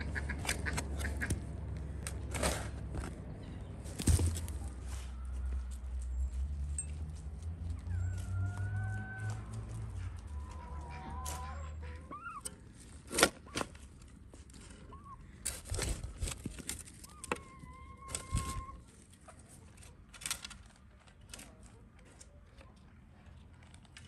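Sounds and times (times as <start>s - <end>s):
chickens clucking: 0.0s - 1.6s, 7.8s - 12.7s, 17.1s - 20.0s
shovel digging into soil: 2.1s - 3.1s.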